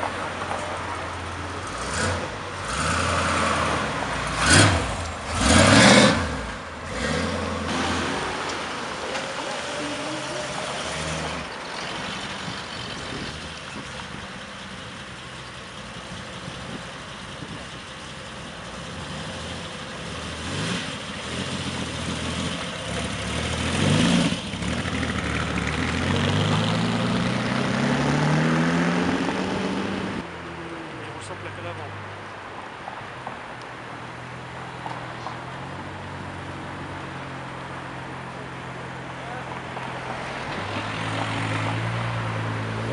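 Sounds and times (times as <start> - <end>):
car accelerating away: 0.0 - 32.0
car engines idling and revving: 0.0 - 42.9.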